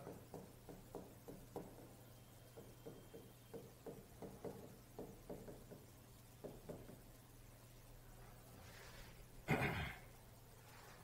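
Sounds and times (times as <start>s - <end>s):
chalk tapping on a blackboard: 0.0s - 7.1s.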